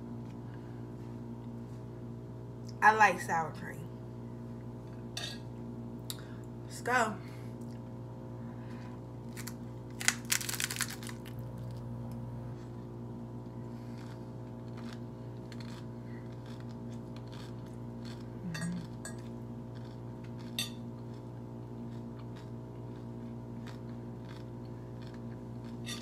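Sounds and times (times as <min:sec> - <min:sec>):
taco shell crunching: 0:09.3 - 0:26.0
chewing: 0:12.5 - 0:26.0.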